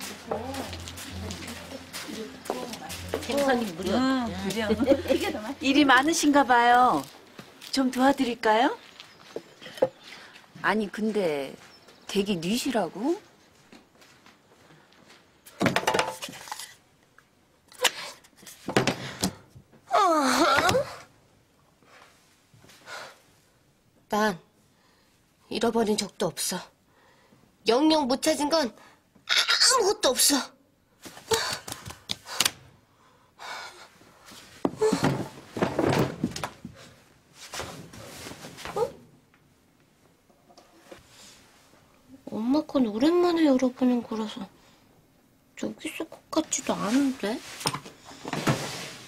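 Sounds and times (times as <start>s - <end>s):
rustling and bumping: 34.6s - 38.8s.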